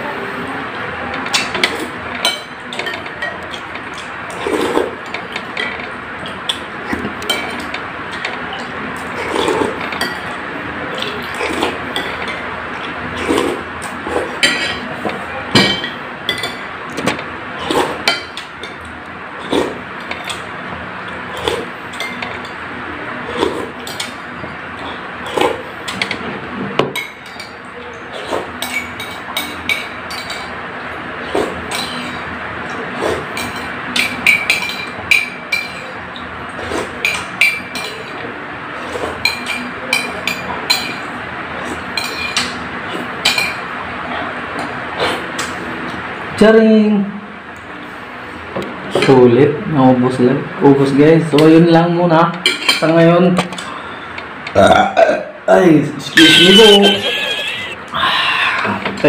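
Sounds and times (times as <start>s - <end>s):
soft eating sounds: 0.1s - 26.6s.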